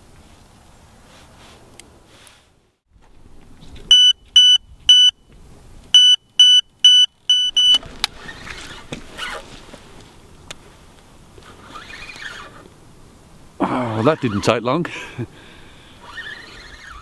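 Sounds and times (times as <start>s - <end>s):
rustling: 0.0s - 4.4s, 7.2s - 12.8s
bite alarm beeping: 3.9s - 5.2s, 6.0s - 7.8s.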